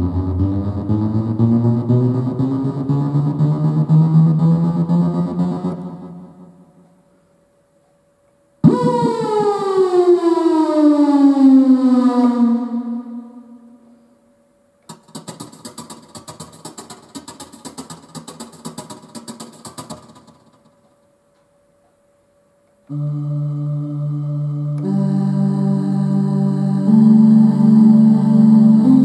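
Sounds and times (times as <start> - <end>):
rapid pulsing synthesizer notes: 0.0 - 6.8, 8.6 - 10.8, 14.9 - 20.7, 22.9 - 29.0
synthesizer note sliding down in pitch: 0.0 - 7.0, 8.6 - 14.0, 22.9 - 29.0.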